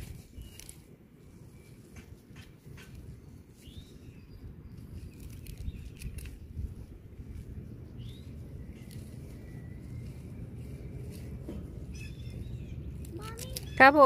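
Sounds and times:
gloved hand rustling leaves: 0.0 - 14.0
low steady rumble: 0.0 - 14.0
bird chirping: 1.5 - 6.5, 7.8 - 14.0.

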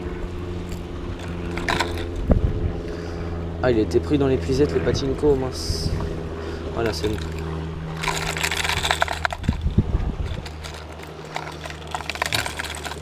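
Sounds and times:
plastic lures clattering in box: 1.2 - 2.2, 6.8 - 7.4, 8.0 - 13.0.

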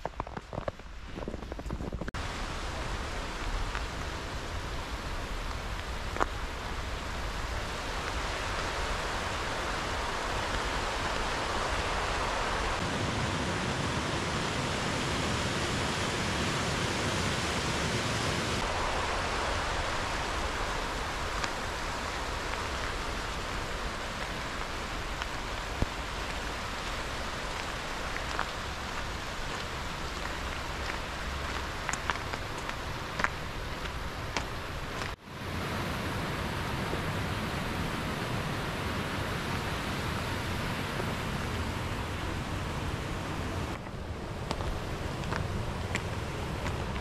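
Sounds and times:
stream rushing: 2.1 - 47.0.

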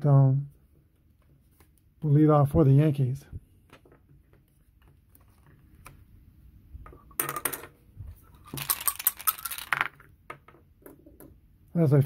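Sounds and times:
dice clattering: 8.4 - 11.3.

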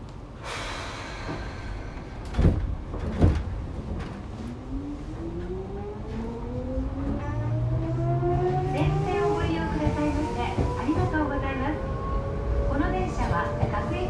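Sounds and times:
rush of air from door engines: 0.4 - 4.3
train doors thudding shut: 0.5 - 4.3
traction motor whine rising: 4.3 - 12.8.

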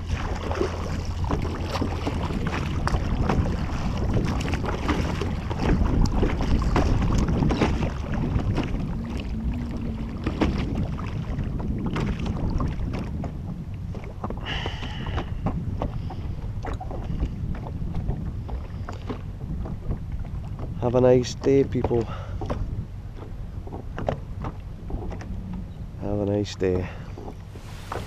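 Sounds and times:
paddle strokes splashing: 0.0 - 20.5, 26.9 - 28.0
water slapping against kayak: 0.0 - 25.6, 26.6 - 28.0
wind buffeting microphone: 0.0 - 28.0.

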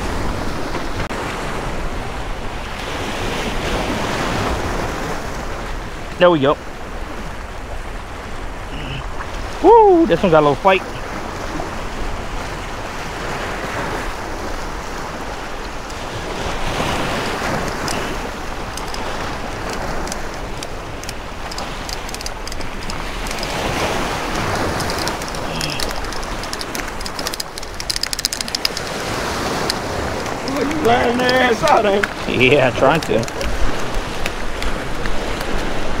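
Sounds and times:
surf splashing over rocks: 0.0 - 36.0
wind buffeting microphone: 0.0 - 36.0
sharp clicks: 17.6 - 30.4.

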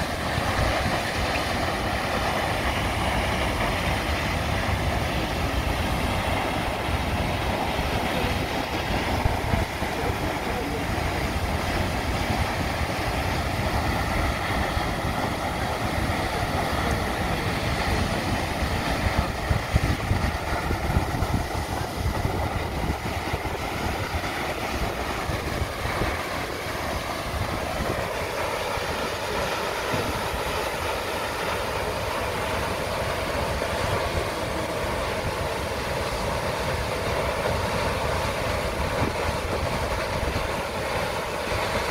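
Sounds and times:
waterfall rushing into sea: 0.0 - 41.9.

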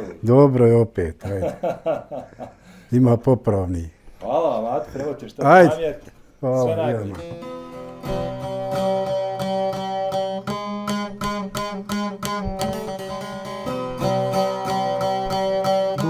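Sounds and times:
long-necked lute strummed: 6.7 - 16.0.

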